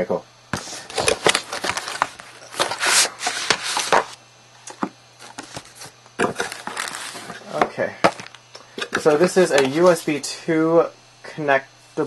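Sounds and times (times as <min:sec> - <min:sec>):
cardboard box rustling and scraping: 0:00.6 - 0:04.2, 0:05.2 - 0:07.5.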